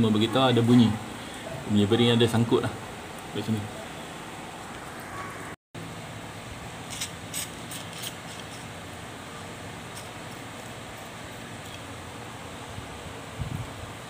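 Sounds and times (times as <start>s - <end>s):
steady low hiss: 5.8s - 14.0s.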